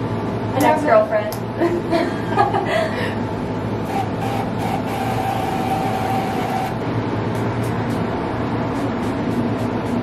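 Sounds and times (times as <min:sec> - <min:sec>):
aerosol spray hissing: 0:03.9 - 0:06.8.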